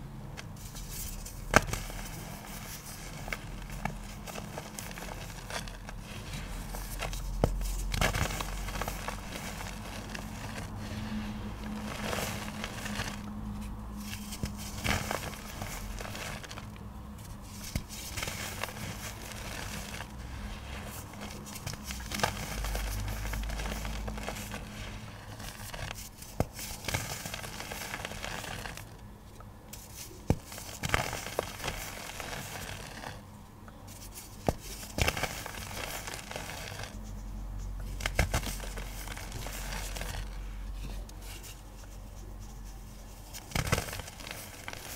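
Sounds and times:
pigment chunks crunching: 0.4s - 29.0s.

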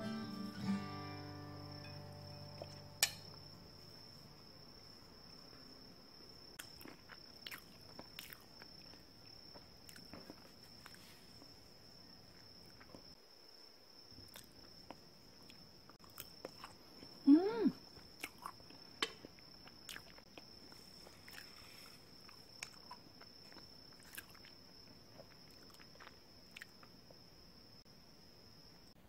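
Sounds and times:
faint high whine: 0.0s - 6.0s
quiet chewing: 6.5s - 11.6s, 14.2s - 17.2s, 17.9s - 27.2s
person humming: 17.3s - 17.8s.

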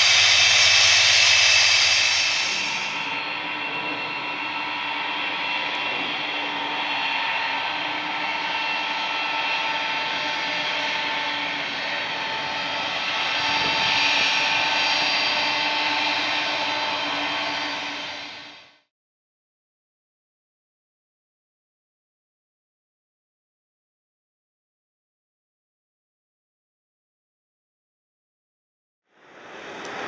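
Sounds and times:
jet engines droning: 0.0s - 18.9s, 29.2s - 30.0s.

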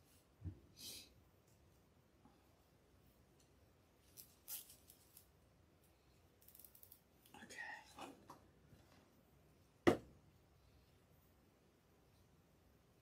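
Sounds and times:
ribbon crinkling and rustling: 4.0s - 5.4s.

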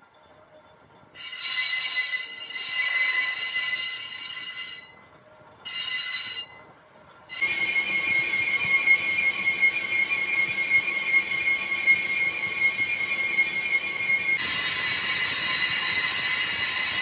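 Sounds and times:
lathe tool squealing on metal: 1.2s - 5.0s, 7.3s - 17.0s.

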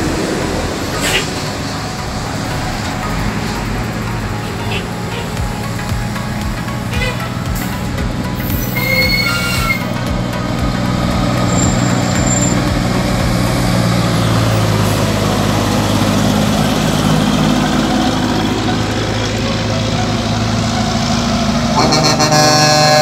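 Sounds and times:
diesel truck engine passing: 0.0s - 23.0s
brief high tone: 8.4s - 10.1s.

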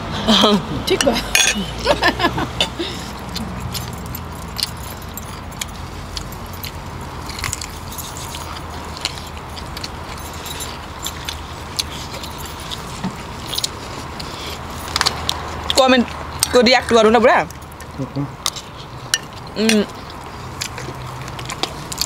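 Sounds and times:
cutlery clinking on plates: 1.3s - 1.7s
chewing: 2.6s - 16.7s, 17.4s - 22.0s.

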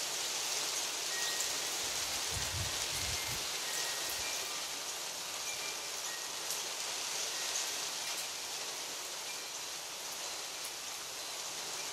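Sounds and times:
steady rain: 0.0s - 11.9s.

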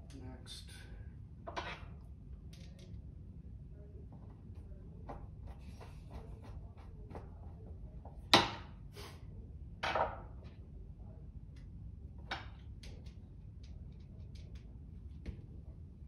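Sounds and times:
knock and scrape: 1.5s - 2.0s.

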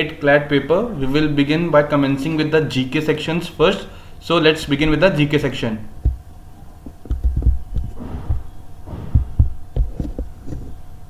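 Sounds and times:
faint electrical hum: 0.0s - 11.0s
microphone handling thumps and clicks: 6.0s - 10.8s.

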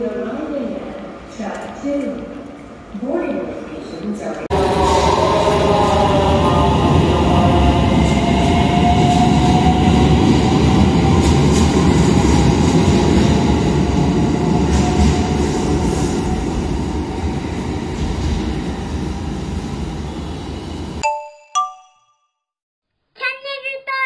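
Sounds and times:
electric train whine: 4.5s - 12.7s
train wheels rumbling on rail: 4.5s - 21.0s.

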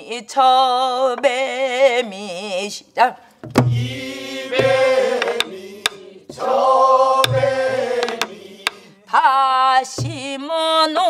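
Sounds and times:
woman singing with vibrato: 0.0s - 3.2s, 8.8s - 11.0s
deep drum thumps: 3.4s - 6.5s, 7.2s - 8.4s, 10.0s - 10.4s
group singing a folk song: 3.6s - 10.3s
stick clicks on drum rims: 4.6s - 6.0s, 8.0s - 8.8s.

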